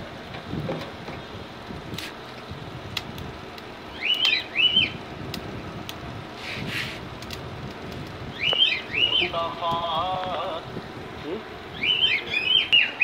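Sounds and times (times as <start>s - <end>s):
steady background hiss: 0.0s - 13.0s
bird chirping: 3.9s - 5.0s, 8.3s - 9.3s, 11.7s - 13.0s.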